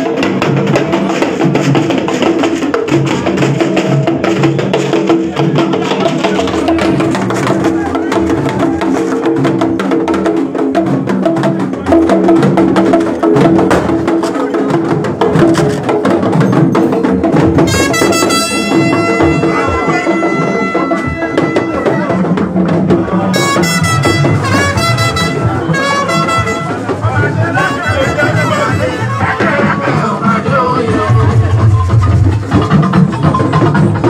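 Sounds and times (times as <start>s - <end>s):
band music with drums: 0.0s - 34.0s
high brass-like notes: 17.6s - 22.4s, 23.3s - 30.2s.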